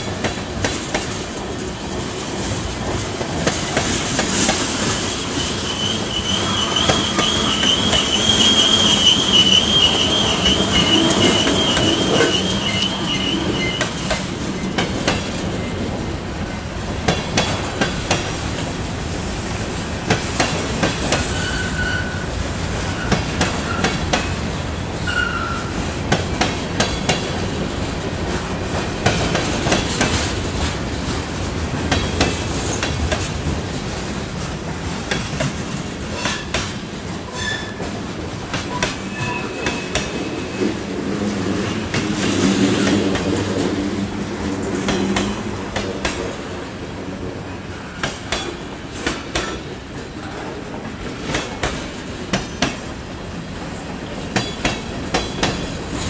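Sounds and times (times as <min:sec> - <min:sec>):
steel wheels rumbling on rail: 0:00.0 - 0:56.0
wheels clacking over rail joints: 0:00.1 - 0:53.0, 0:53.7 - 0:56.0
high wheel squeals: 0:05.1 - 0:14.0, 0:21.3 - 0:22.3, 0:38.7 - 0:40.6.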